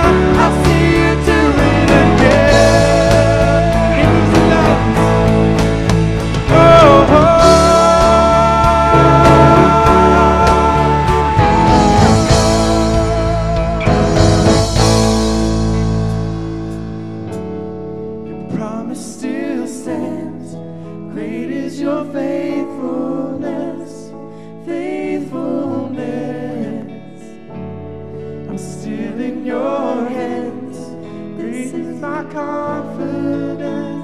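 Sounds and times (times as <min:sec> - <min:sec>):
people singing: 0:00.0 - 0:15.3, 0:18.5 - 0:27.5, 0:28.4 - 0:34.0
held low notes: 0:00.0 - 0:18.4
guitars: 0:00.0 - 0:22.6, 0:24.3 - 0:34.0
keyboard: 0:00.0 - 0:34.0.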